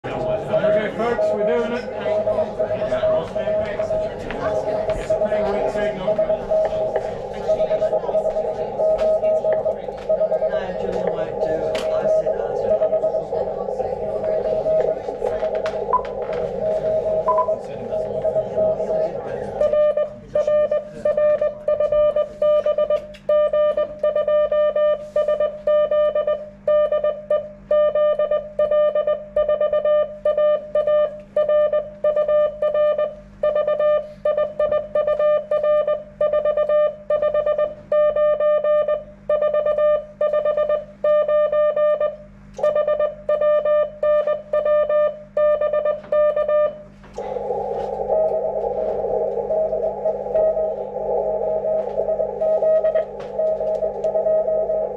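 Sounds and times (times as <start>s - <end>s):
steady low hum: 0.0s - 54.9s
radio receiver hiss: 0.2s - 21.2s, 46.9s - 54.9s
morse code sidetone beeping: 0.5s - 54.9s.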